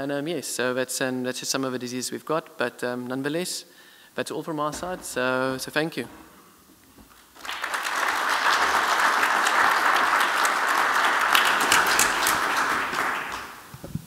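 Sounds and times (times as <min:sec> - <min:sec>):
audience applauding: 0:07.0 - 0:13.7.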